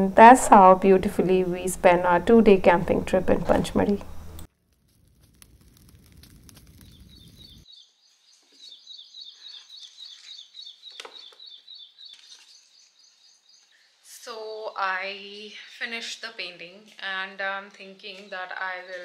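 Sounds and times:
campfire crackling: 4.2 - 7.9
small bird chirping: 5.8 - 14.0.

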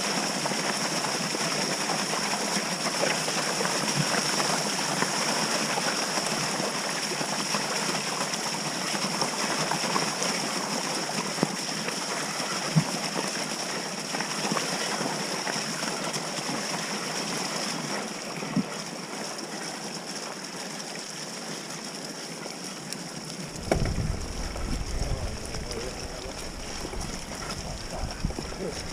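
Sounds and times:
tyre and wind rush: 23.5 - 28.9
bike knocking over bumps: 23.6 - 28.9.

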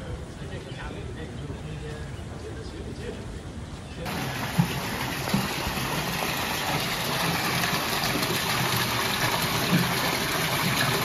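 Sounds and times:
water splashing into a pond: 4.1 - 11.0.

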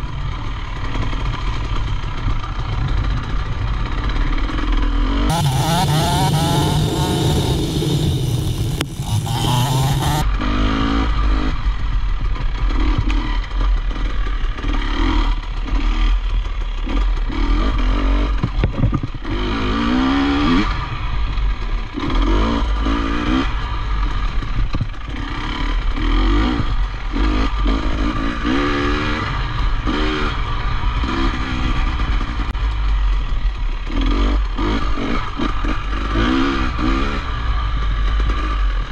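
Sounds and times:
low wind rumble: 0.0 - 14.4
dirt bike engine revving: 3.8 - 11.8, 12.4 - 18.5, 19.2 - 24.4, 25.0 - 32.6, 33.8 - 38.9
loud rushing hiss: 5.3 - 10.2.

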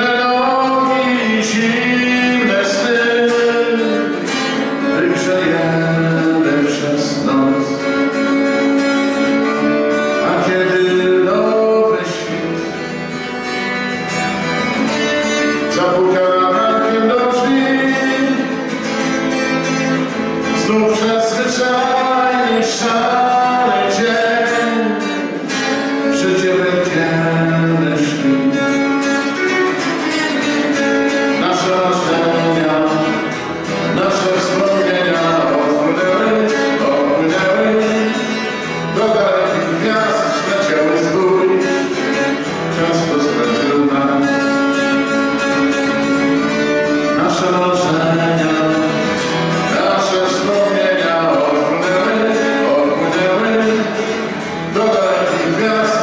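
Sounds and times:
acoustic guitar strumming: 0.0 - 56.0
man singing: 0.0 - 56.0.

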